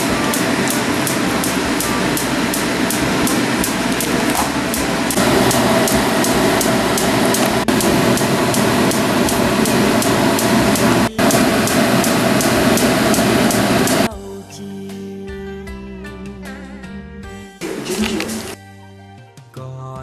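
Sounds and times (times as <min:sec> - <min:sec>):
faint regular ticking: 0:00.0 - 0:14.1.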